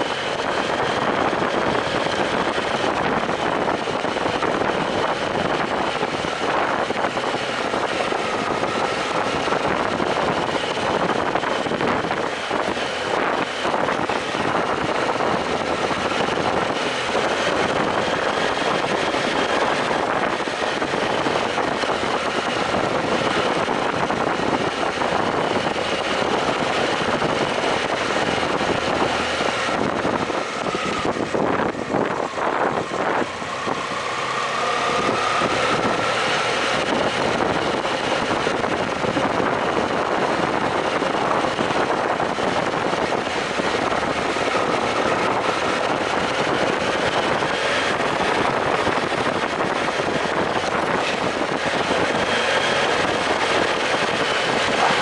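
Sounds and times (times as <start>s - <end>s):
motorcycle engine running: 0.0s - 55.0s
road noise: 0.0s - 55.0s
wind rushing: 0.0s - 55.0s.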